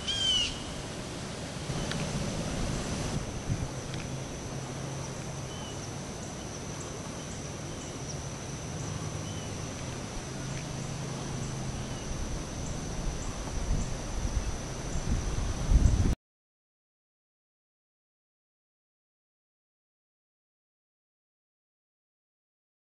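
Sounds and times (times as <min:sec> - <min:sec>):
bird chirps: 0:00.0 - 0:00.7, 0:05.5 - 0:06.5, 0:08.8 - 0:09.7
low hum: 0:00.6 - 0:16.2.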